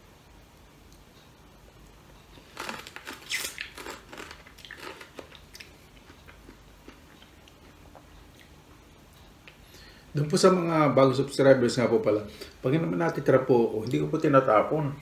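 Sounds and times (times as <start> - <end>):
close-up chewing: 2.3 - 8.6
crunchy bites into mango: 2.4 - 8.0.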